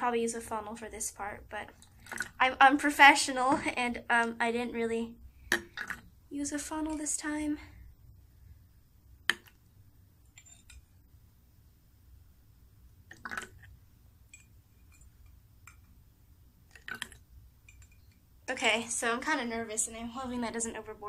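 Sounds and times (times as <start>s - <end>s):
small chinks and light knocks: 13.1s - 16.0s, 16.7s - 18.2s.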